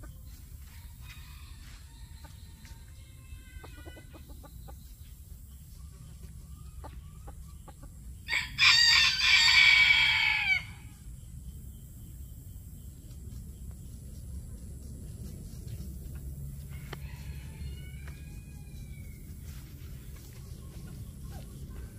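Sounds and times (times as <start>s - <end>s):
rooster crowing: 8.3s - 11.0s, 16.6s - 19.3s.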